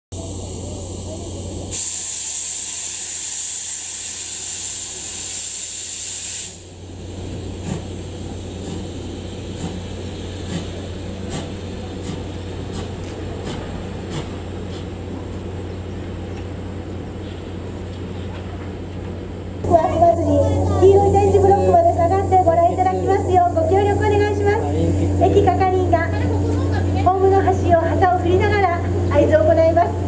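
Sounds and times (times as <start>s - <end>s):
steam locomotive hissing steam: 0.2s - 15.9s, 19.7s - 30.0s
low hum: 6.7s - 30.0s.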